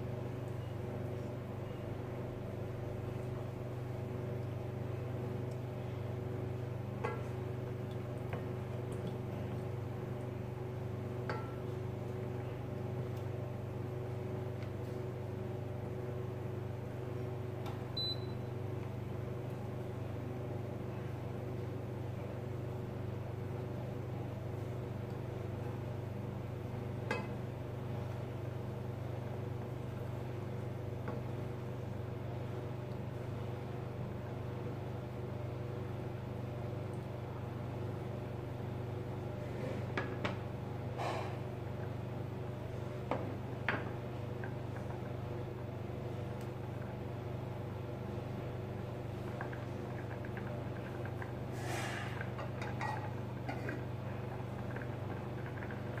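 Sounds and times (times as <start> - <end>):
low machine hum: 0.0 - 56.0.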